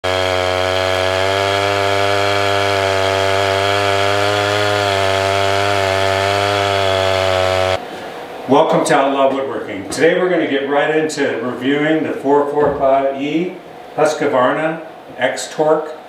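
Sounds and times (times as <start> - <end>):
chainsaw cutting log: 0.0 - 7.8.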